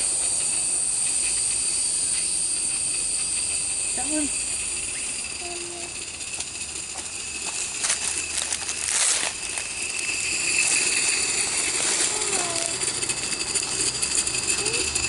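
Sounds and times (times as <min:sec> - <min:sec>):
insects droning: 0:00.0 - 0:15.0
footsteps crunching dry leaves: 0:07.4 - 0:12.2.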